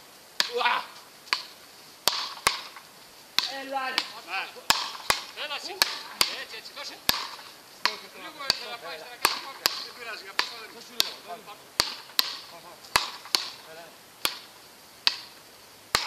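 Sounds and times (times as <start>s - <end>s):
wooden paddles hitting a ball: 0.4s - 16.0s.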